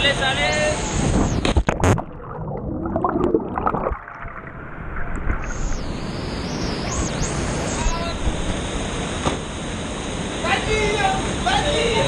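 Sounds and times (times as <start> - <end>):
rushing water: 1.6 - 6.5.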